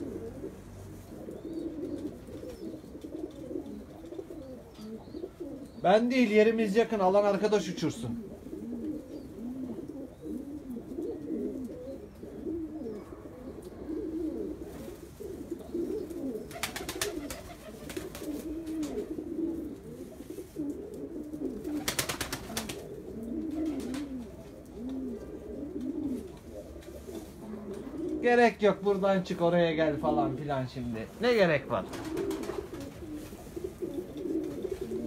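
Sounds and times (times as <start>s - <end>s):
pigeons cooing: 0.0s - 35.0s
pigeon wing flapping: 16.1s - 19.1s, 20.6s - 24.3s, 31.8s - 35.0s.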